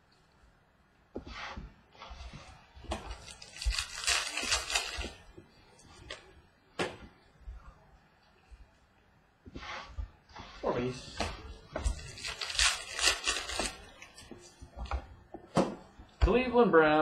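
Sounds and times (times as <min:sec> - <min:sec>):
card pack crinkling and tearing: 0:03.1 - 0:05.3, 0:12.0 - 0:14.2.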